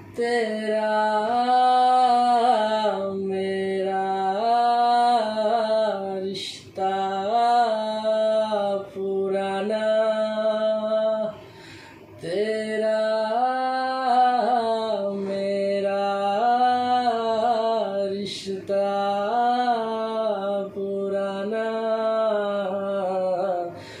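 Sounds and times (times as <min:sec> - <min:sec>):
singer breathing: 0:11.4 - 0:12.2, 0:23.7 - 0:24.0.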